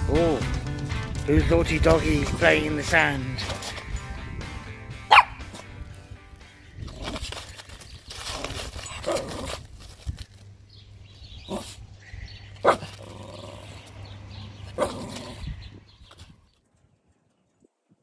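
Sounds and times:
puppies yapping: 5.1s - 5.6s
puppies scrambling in sand: 6.8s - 10.5s, 11.2s - 16.4s.

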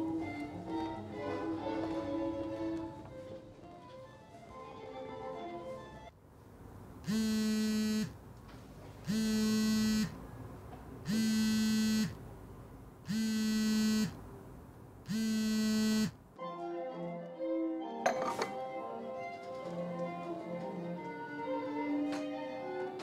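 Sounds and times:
phone vibrating on table: 7.1s - 8.2s, 9.1s - 10.2s, 11.1s - 12.2s, 13.1s - 14.2s, 15.1s - 16.2s.

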